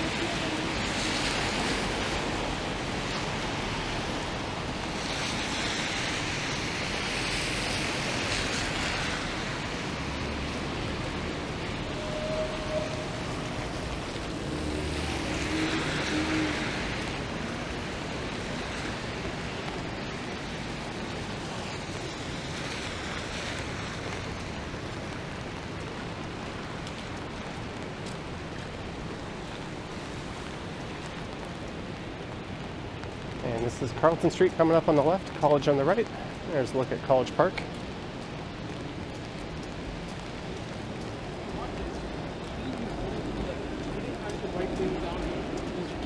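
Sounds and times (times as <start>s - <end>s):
tyres hissing on wet pavement: 0.0s - 46.0s
vehicle passing: 5.5s - 19.1s.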